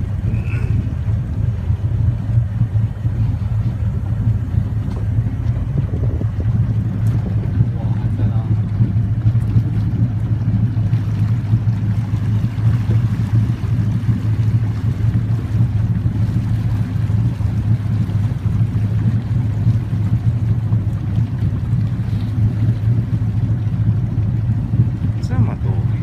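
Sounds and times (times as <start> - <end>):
boat motor droning: 0.0 - 26.0
water noise: 0.0 - 26.0
wind noise: 2.6 - 10.4.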